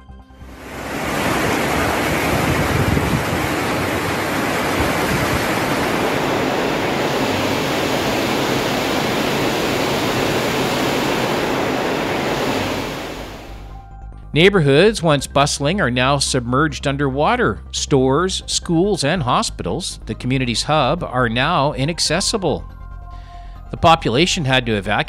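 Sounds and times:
floodwater roaring: 0.4s - 13.7s.

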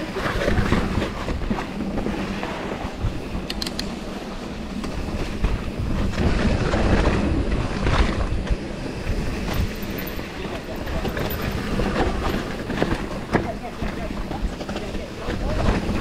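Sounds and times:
bike tyres rolling and bumping: 0.0s - 16.0s
wind buffeting microphone: 0.0s - 16.0s
sharp clicks: 3.4s - 3.9s.

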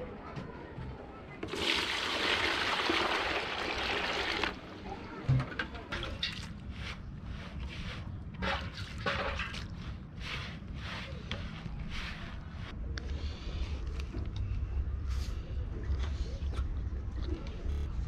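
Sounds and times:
water pouring into plastic tub: 1.4s - 4.6s.

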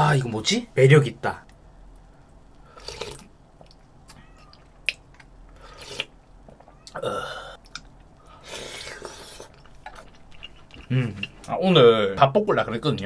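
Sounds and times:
person slurping and chewing: 2.7s - 3.3s, 4.8s - 11.5s
wet mouth clicks and smacks: 7.6s - 7.9s.

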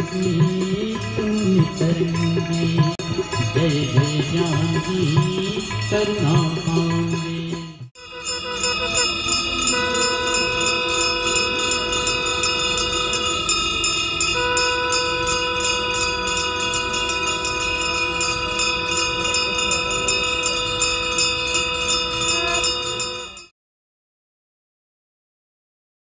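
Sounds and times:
bells ringing rapidly: 0.0s - 23.5s
conch shells blown: 8.0s - 23.5s.

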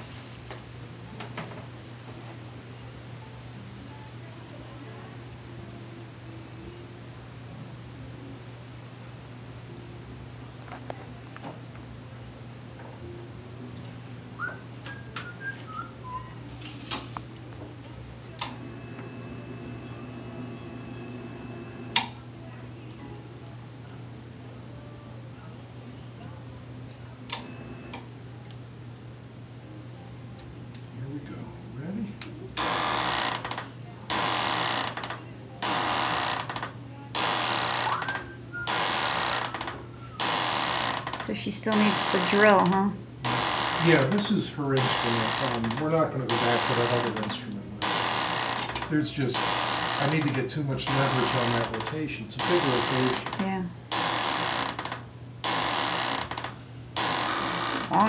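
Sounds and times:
low electrical hum: 0.0s - 58.0s
person whistling: 14.4s - 16.4s
instrument buzzing in bursts: 18.4s - 22.1s, 27.4s - 28.1s, 32.6s - 33.5s, 34.1s - 36.6s, 37.2s - 44.2s, 44.8s - 45.7s, 47.8s - 50.3s, 50.9s - 58.0s.

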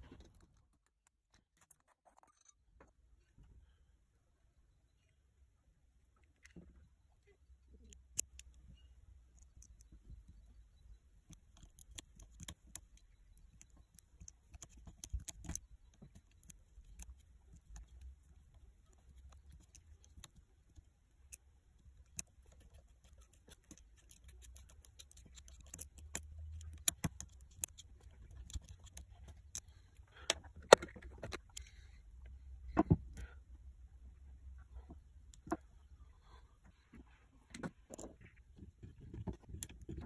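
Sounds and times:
small metal clicks: 7.8s - 32.3s, 37.5s - 40.0s.

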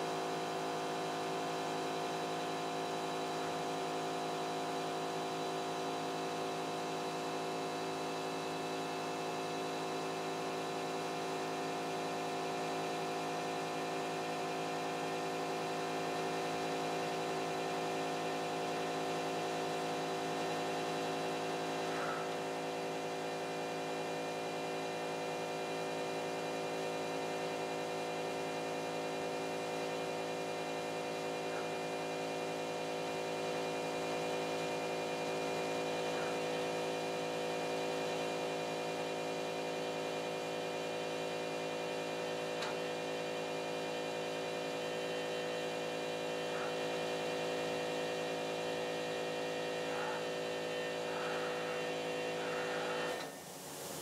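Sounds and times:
electrical motor hum: 0.0s - 54.0s.

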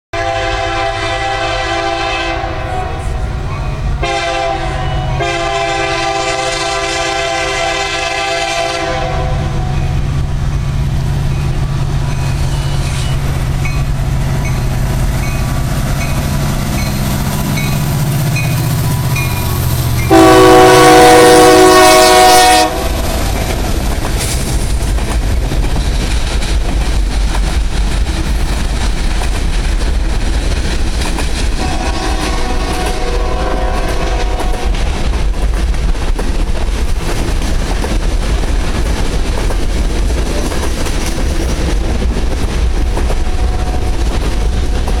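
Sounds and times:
diesel locomotive engine rumble: 0.1s - 45.0s
locomotive air horn blasts: 0.2s - 3.4s, 4.0s - 10.1s, 18.4s - 23.1s, 31.6s - 34.8s, 43.2s - 44.0s
train wheels clattering: 9.6s - 45.0s.

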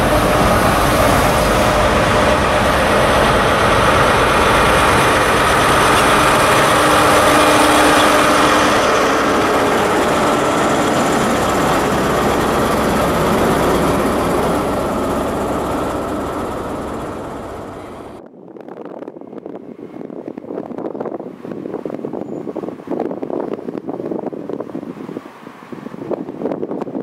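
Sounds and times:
locomotive diesel engine running: 0.0s - 18.2s
train coaches rolling past: 0.0s - 18.2s.

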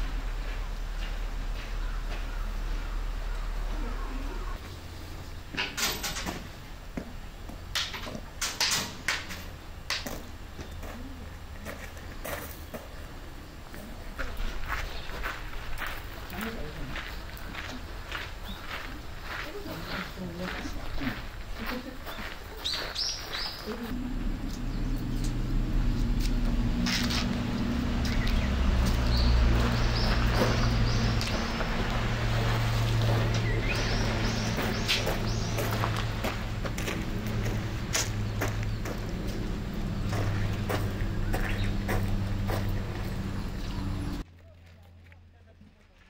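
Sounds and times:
small birds chirping: 0.4s - 5.8s, 13.4s - 44.2s
footsteps crunching on gravel: 13.7s - 46.0s
faint low hum: 23.6s - 46.0s
low motor drone: 23.8s - 44.2s.

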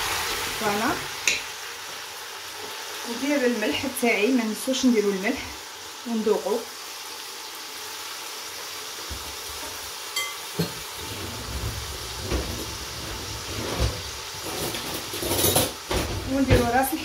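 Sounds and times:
food sizzling in oil: 0.0s - 17.0s.

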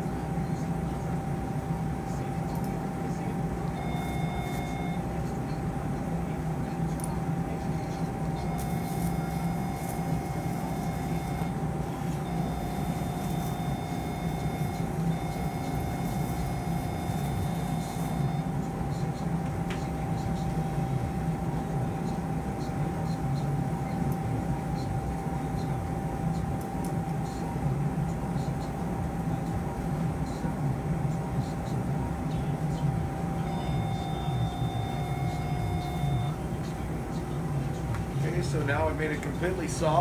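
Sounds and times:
cautery unit beep: 2.5s - 5.2s, 7.0s - 19.0s, 33.1s - 36.5s.

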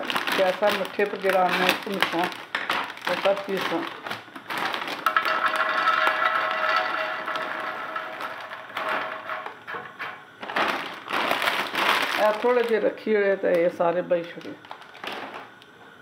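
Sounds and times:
light pieces rattling into a pan: 0.3s - 12.8s.

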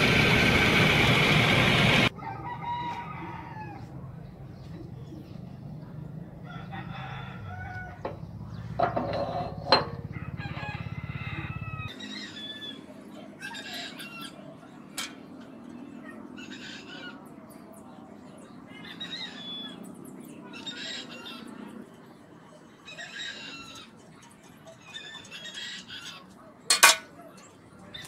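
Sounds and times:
roosters crowing: 0.0s - 4.1s, 6.4s - 14.8s.

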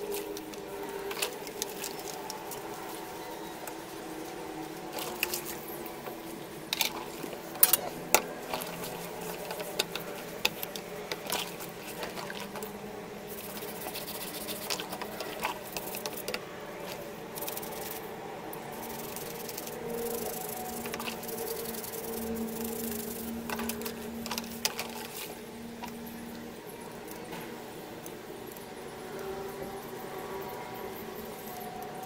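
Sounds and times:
soapy water squelching and splashing: 0.0s - 18.1s, 18.7s - 26.1s
steel wool and brush scraping metal: 0.0s - 26.0s.

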